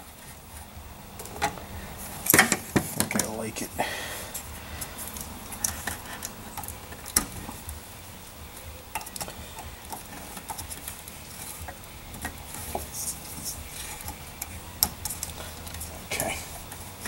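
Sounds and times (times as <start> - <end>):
hands handling wires clicking: 4.3 - 7.8, 8.5 - 17.0.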